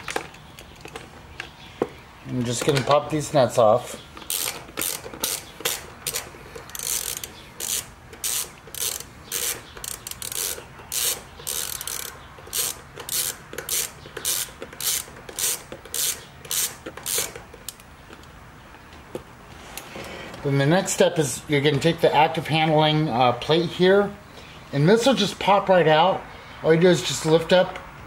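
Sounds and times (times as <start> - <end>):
hand ratchet clicking: 4.2 - 18.3.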